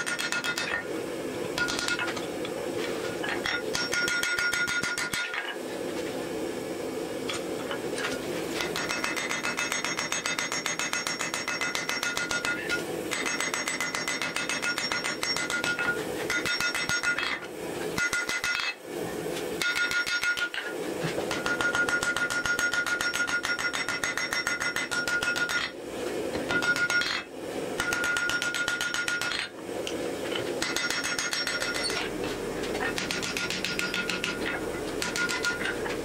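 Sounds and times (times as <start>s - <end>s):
hammer striking steel on anvil: 0.0s - 0.8s, 1.6s - 2.1s, 3.4s - 5.4s, 8.6s - 17.4s, 18.0s - 18.7s, 19.6s - 20.7s, 21.3s - 25.7s, 26.4s - 27.2s, 27.8s - 29.5s, 30.6s - 36.0s
anvil ringing: 33.0s - 35.8s.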